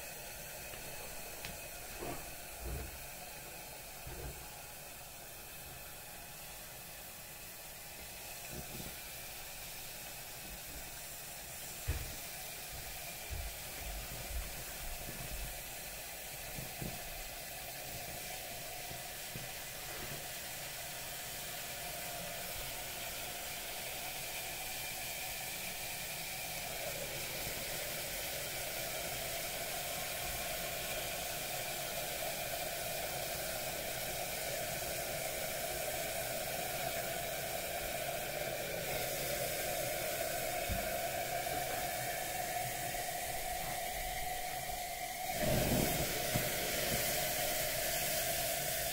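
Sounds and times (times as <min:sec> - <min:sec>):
boiling liquid hissing and sizzling: 0:00.0 - 0:48.9
liquid nitrogen pouring: 0:13.1 - 0:48.9.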